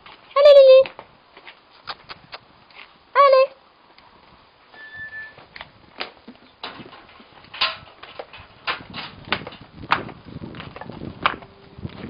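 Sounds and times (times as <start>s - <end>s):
goat hooves tapping on stone: 5.6s - 12.0s.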